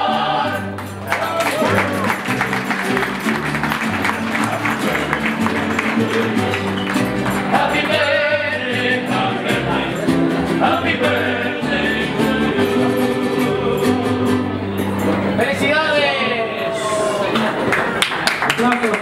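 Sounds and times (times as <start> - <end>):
person singing with vibrato: 0.0 - 1.8, 4.8 - 14.8
guitarron deep bass notes: 0.0 - 15.8
strummed guitars: 0.0 - 16.6.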